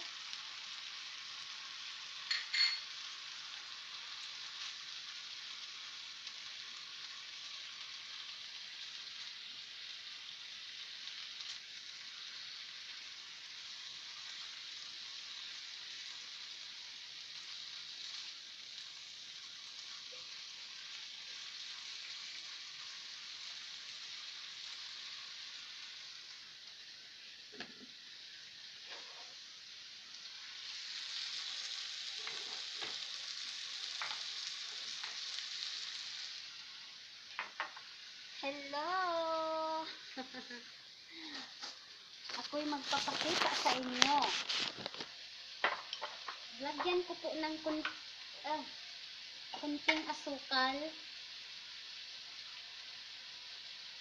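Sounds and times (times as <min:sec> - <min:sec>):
food sizzling in a frying pan: 0:00.0 - 0:54.0
spatula stirring in pan: 0:28.8 - 0:29.4, 0:30.5 - 0:35.8, 0:41.4 - 0:48.0.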